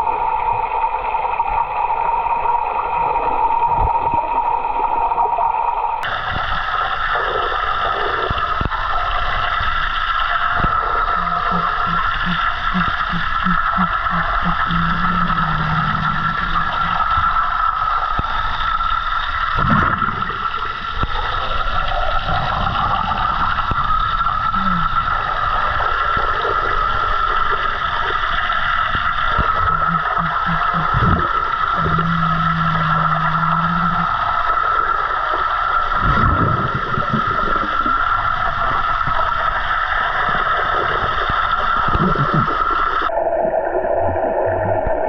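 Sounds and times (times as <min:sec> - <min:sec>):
underwater noise: 0:00.0 - 0:45.0
constant high hum: 0:04.0 - 0:43.6
short low tones: 0:10.7 - 0:17.1, 0:29.4 - 0:34.2.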